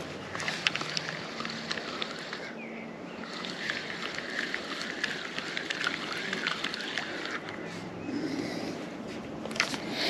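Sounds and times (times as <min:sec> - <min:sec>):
fishing reel clicking: 0:00.3 - 0:02.6, 0:03.2 - 0:07.6.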